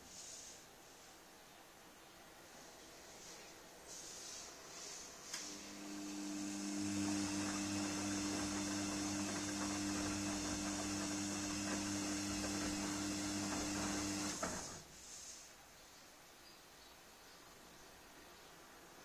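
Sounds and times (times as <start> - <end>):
washing machine motor hum: 5.4 - 15.0.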